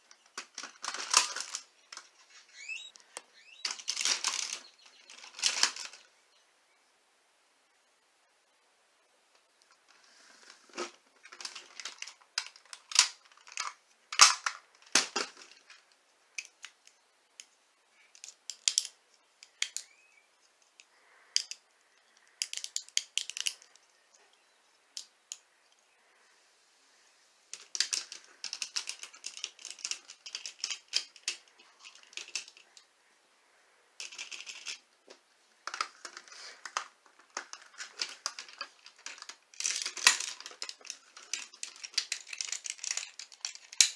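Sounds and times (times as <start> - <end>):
plastic toy parts clicking and snapping: 0.1 - 2.1, 3.1 - 6.1, 10.8 - 17.5, 18.1 - 20.0, 20.6 - 23.8, 24.9 - 25.4, 27.5 - 32.9, 34.0 - 34.8, 35.6 - 43.9.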